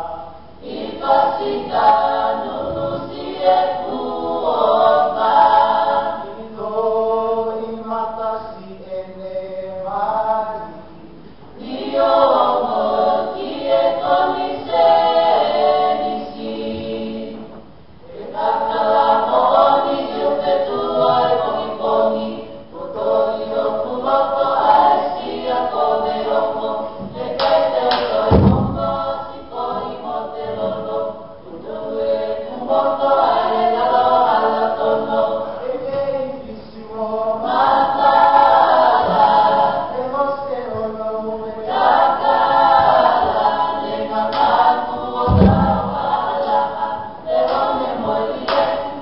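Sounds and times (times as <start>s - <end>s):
group of voices singing: 0.0s - 49.0s
sharp thump: 28.3s - 29.0s, 45.3s - 46.1s.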